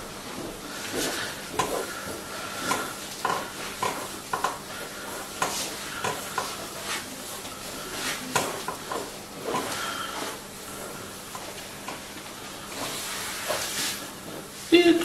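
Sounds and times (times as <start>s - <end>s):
hands rubbing oiled skin: 4.8s - 14.6s.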